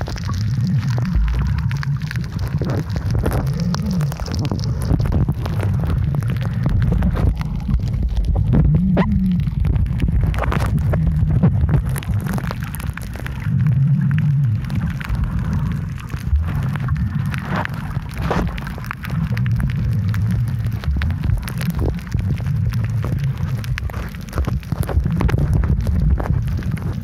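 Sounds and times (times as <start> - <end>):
crackling clicks and pops: 0.0 - 27.0
underwater rumble of moving water: 0.0 - 27.0.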